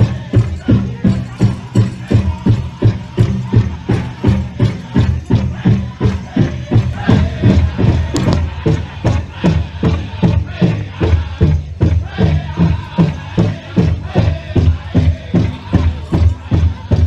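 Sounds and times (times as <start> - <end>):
drum beaten in steady beat: 0.0 - 17.0
people singing: 0.0 - 17.0.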